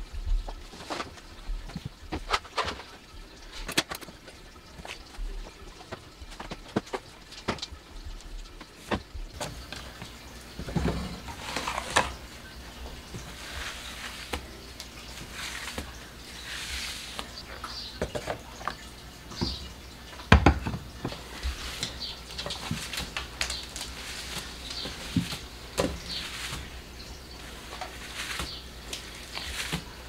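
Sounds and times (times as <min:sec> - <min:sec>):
knocks and clatters of objects: 0:00.0 - 0:12.3, 0:17.6 - 0:26.7
sponge scrubbing a countertop: 0:10.6 - 0:12.3, 0:12.9 - 0:17.4, 0:21.2 - 0:30.0.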